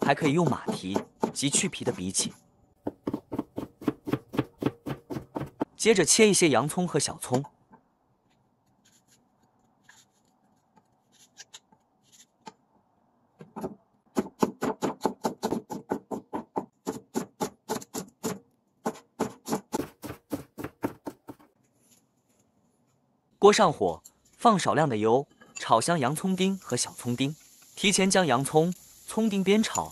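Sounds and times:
cleaver chopping on wooden board: 2.9s - 5.7s, 13.6s - 21.4s.

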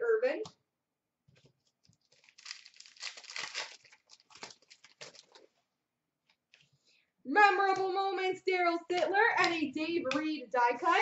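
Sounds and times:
wrapper tearing and crinkling: 2.0s - 5.5s.

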